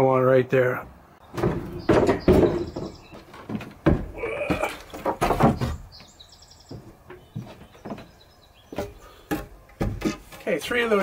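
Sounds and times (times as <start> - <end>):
wooden boards knocking and scraping: 0.8 - 11.0.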